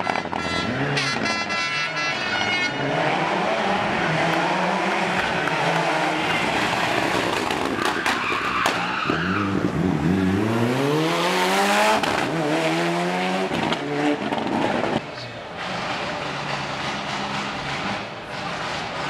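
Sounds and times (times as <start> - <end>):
car engine at full throttle: 2.4 - 7.9, 9.0 - 19.0
tyres squealing: 7.5 - 9.6.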